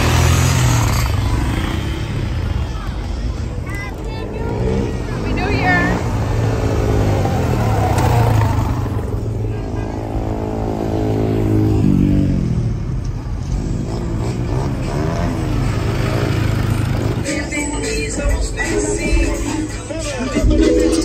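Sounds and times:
car engine revving: 0.0 - 3.0, 3.7 - 12.8, 13.4 - 19.7.

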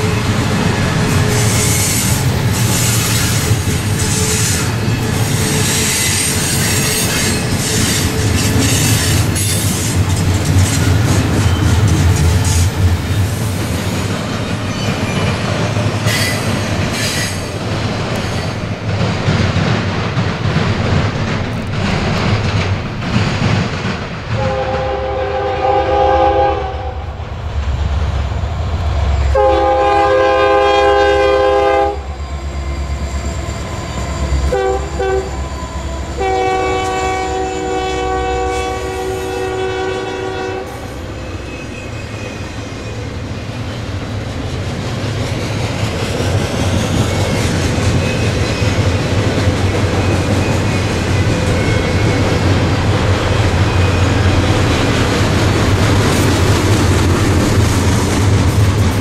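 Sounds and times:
passing train rumble: 0.0 - 59.0
wheels clacking over rail joints: 0.6 - 24.7
locomotive air horn blasts: 24.4 - 27.1, 29.3 - 32.1, 34.5 - 35.4, 36.2 - 41.0.

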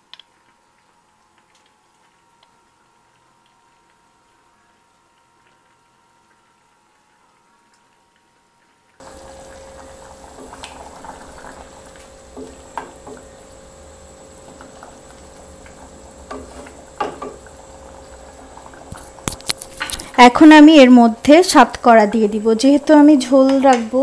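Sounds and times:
curry simmering in saucepan: 0.2 - 24.0
wooden spatula scraping pot: 9.0 - 20.2.

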